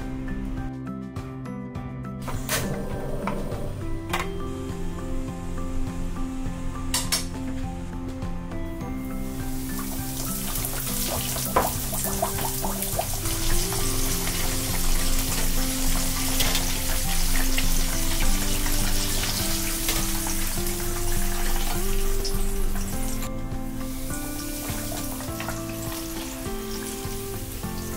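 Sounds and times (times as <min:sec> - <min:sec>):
background music: 0:00.0 - 0:27.9
food deep-frying in oil: 0:09.0 - 0:27.9.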